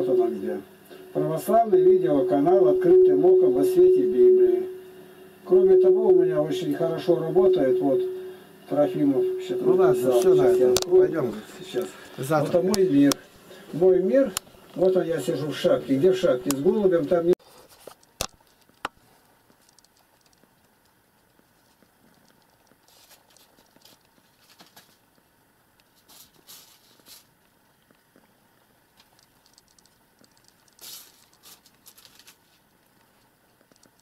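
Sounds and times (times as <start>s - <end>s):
faint soft rustles and ticks: 17.1s - 34.0s.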